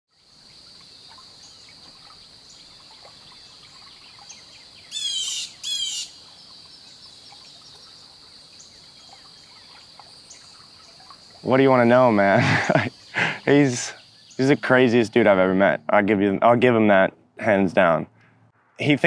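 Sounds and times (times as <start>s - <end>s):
faint chirps: 0.2s - 15.9s
insects droning: 0.2s - 19.0s
bird calling: 0.9s - 15.8s.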